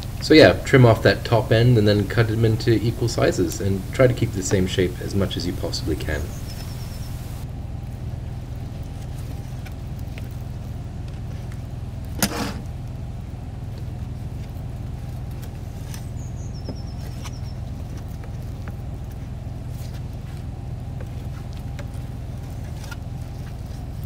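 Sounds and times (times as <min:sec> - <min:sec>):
low motor hum: 0:00.0 - 0:24.0
high chirping call: 0:02.6 - 0:07.4, 0:16.0 - 0:17.6.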